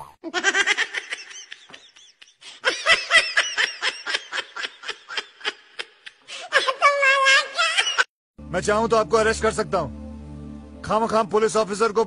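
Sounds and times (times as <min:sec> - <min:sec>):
high-pitched laughter: 0:00.2 - 0:08.1.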